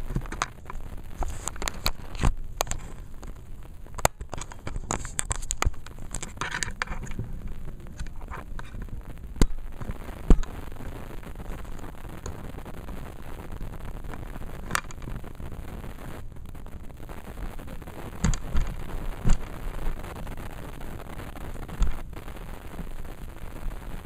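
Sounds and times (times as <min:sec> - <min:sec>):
microphone handling scratches: 0:00.0 - 0:24.0.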